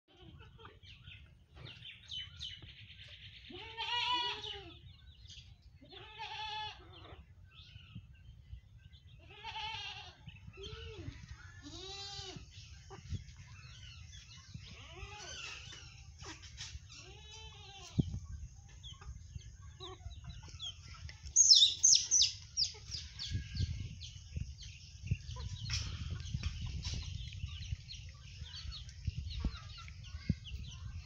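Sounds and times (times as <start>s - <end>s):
farm animal calls: 3.4s - 4.9s, 9.1s - 24.3s
steady low rumble: 18.1s - 31.0s.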